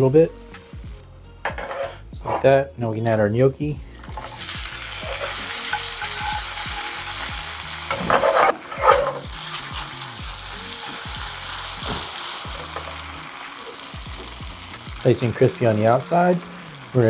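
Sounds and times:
gnocchi sizzling in pan: 4.1 - 17.0.

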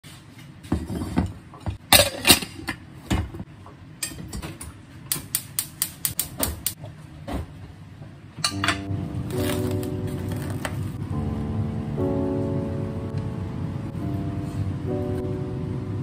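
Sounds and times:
gas hob spark igniter ticking: 5.1 - 6.8.

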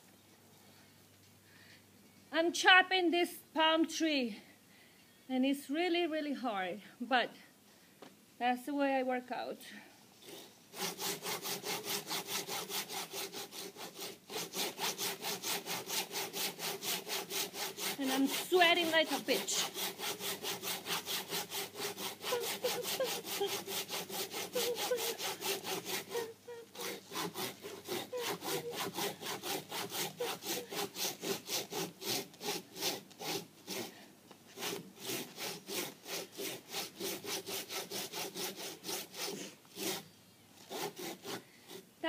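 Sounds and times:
hand saw cutting wood: 10.2 - 41.9.

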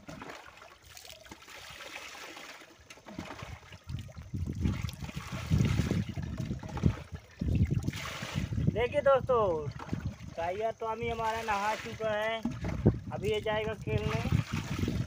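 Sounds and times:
water trickling into a tub: 0.0 - 15.0.

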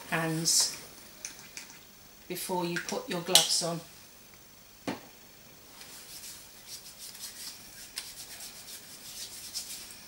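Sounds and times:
hands rubbing together: 5.8 - 10.0.

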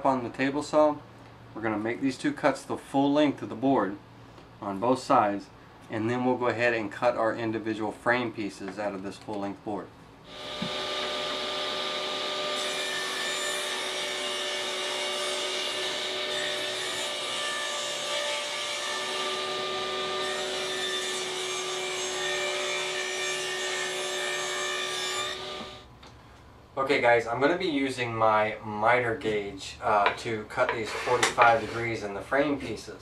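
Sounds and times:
table saw cutting wood: 10.3 - 25.9.

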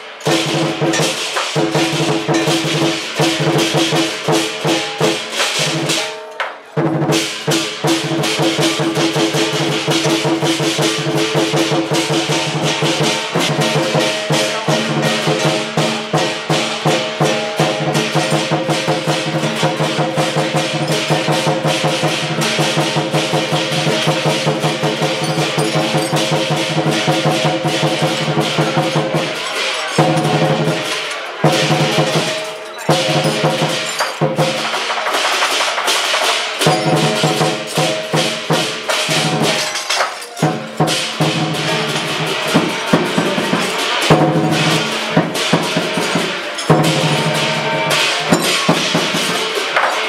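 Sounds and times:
large drum beaten rapidly: 0.0 - 6.2, 6.8 - 50.0
cymbals clashing: 0.0 - 50.0
ringing metallic tone: 19.2 - 27.7, 39.2 - 50.0.

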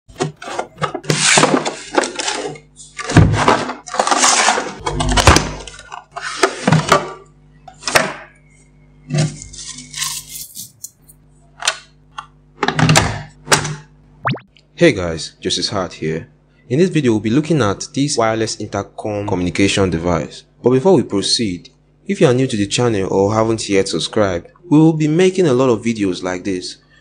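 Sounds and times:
cardboard and plastic packaging rubbing: 0.2 - 4.8, 9.3 - 10.9.

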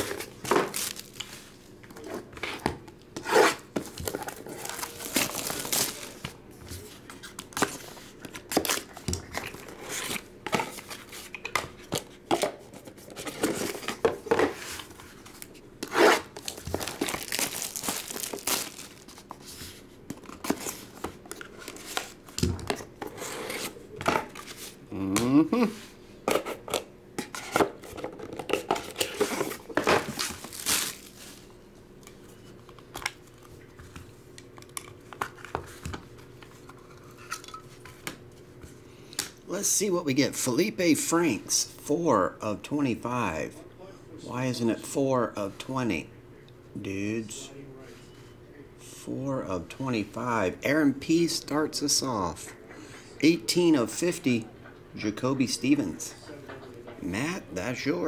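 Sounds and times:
plastic wrap crinkling and tearing: 0.7 - 1.4, 4.0 - 6.2, 16.4 - 19.3, 29.4 - 31.4
knife slitting cardboard box: 15.9 - 16.3.

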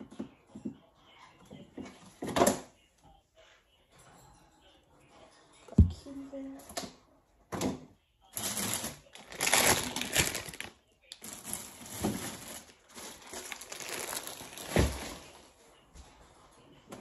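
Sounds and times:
packaging crinkling: 8.4 - 15.4.

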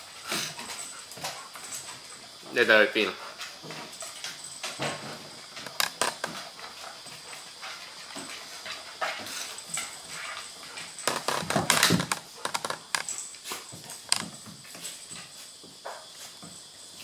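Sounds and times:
dog panting: 3.0 - 4.6, 6.3 - 11.0
dog claws clicking on wooden floor: 5.5 - 6.8, 7.6 - 14.4.

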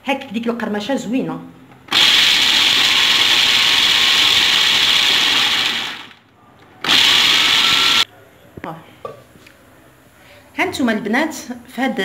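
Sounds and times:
food processor chopping nuts: 1.9 - 6.2, 6.8 - 8.0.

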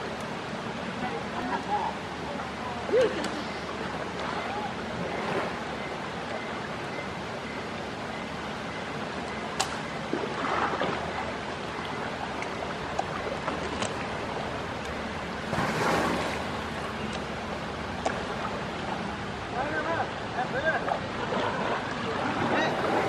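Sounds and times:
river water washing: 0.0 - 23.0
elephant splashing: 9.3 - 19.4, 21.0 - 23.0.

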